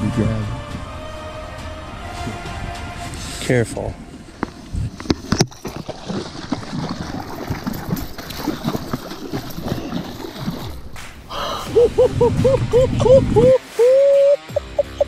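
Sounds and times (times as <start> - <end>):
water splashing at boatside: 4.0 - 14.2
person breathing hard: 11.3 - 12.0.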